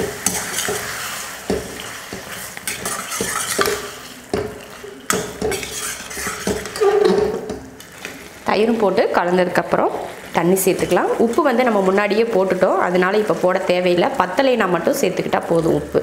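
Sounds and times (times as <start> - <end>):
spatula knocking on pan: 0.0 - 5.8
spatula scraping pan: 0.0 - 8.4
frying sizzle: 0.0 - 16.0.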